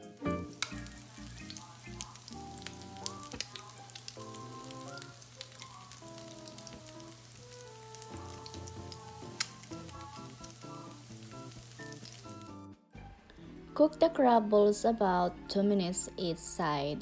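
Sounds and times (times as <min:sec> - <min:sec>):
food sizzling in oil: 0:00.0 - 0:12.6.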